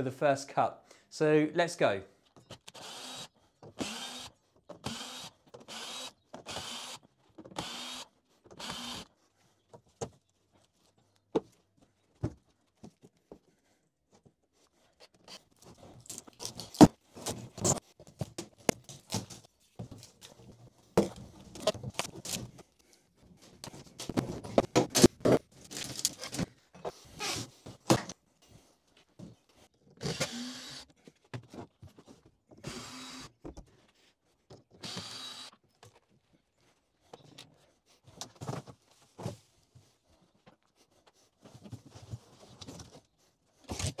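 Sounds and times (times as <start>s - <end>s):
cordless drill running in bursts: 2.7s - 7.0s, 7.6s - 9.0s, 30.0s - 30.8s, 32.6s - 33.3s, 34.8s - 35.5s
plywood panels knocking and scraping: 23.7s - 26.6s.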